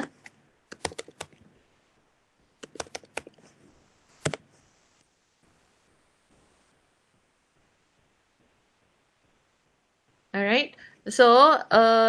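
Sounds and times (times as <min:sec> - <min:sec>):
computer keyboard keystrokes: 0:00.7 - 0:01.4, 0:02.6 - 0:03.4.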